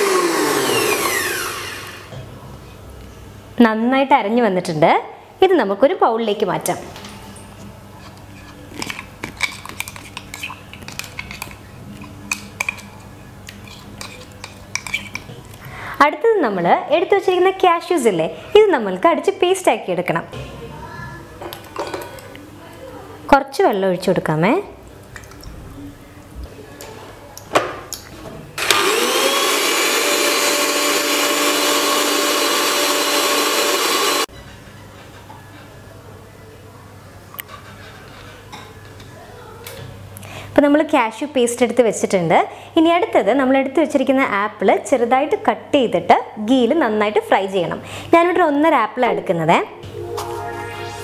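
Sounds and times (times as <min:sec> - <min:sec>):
mixer grinder motor whine: 0:00.0 - 0:02.1, 0:28.6 - 0:34.3.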